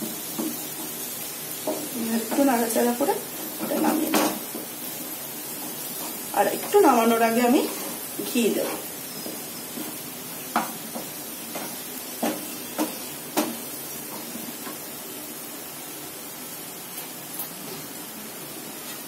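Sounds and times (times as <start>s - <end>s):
spatula scraping a frying pan: 3.5s - 13.1s.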